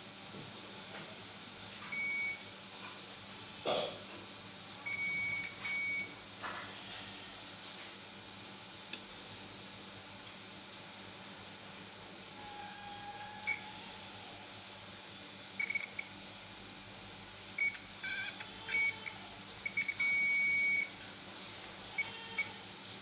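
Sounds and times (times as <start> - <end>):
multimeter continuity beeps: 1.9 - 2.4, 4.9 - 6.1, 15.6 - 16.2, 17.6 - 21.0, 22.0 - 22.6.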